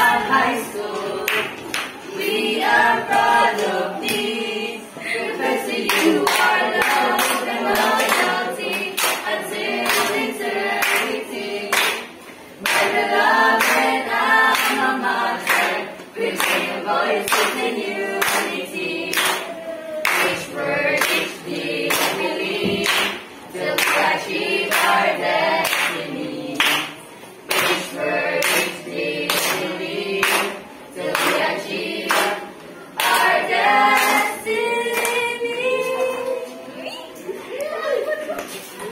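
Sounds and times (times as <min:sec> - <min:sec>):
group of teenagers singing hymn: 0:00.0 - 0:36.8
hand claps: 0:01.2 - 0:02.4, 0:05.8 - 0:10.2, 0:10.8 - 0:13.0, 0:13.6 - 0:20.4, 0:21.0 - 0:21.3, 0:21.9 - 0:25.0, 0:25.6 - 0:26.0, 0:26.6 - 0:28.7, 0:29.3 - 0:31.5, 0:32.1 - 0:32.4, 0:33.0 - 0:34.3.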